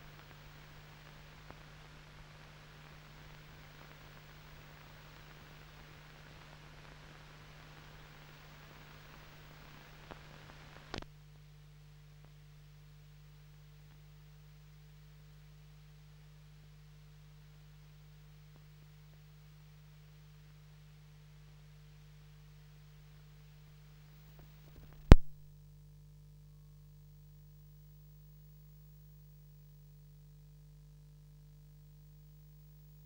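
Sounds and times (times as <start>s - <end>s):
light hiss: 0.0s - 11.2s
faint steady tone: 0.0s - 33.0s
low electrical hum: 0.0s - 33.0s
sharp click: 24.9s - 25.4s.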